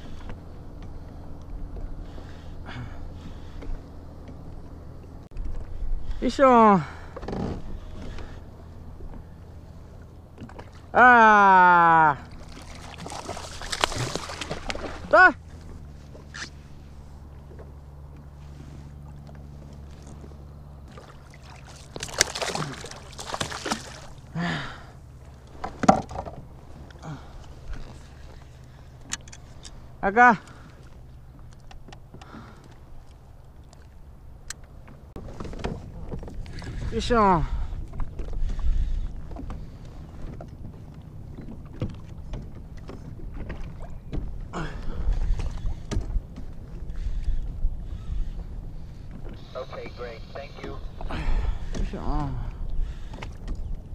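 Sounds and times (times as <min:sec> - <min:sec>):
low steady hum: 0:00.0 - 0:53.9
water lapping against kayak: 0:00.0 - 0:53.9
water splashing: 0:10.3 - 0:17.5, 0:19.0 - 0:28.8
wind rumbling on microphone: 0:35.1 - 0:49.5, 0:50.3 - 0:53.9.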